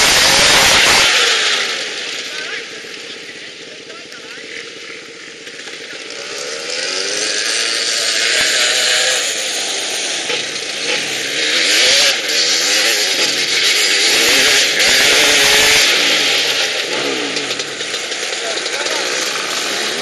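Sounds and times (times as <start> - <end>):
two-stroke engine revving: 0.0 - 20.0.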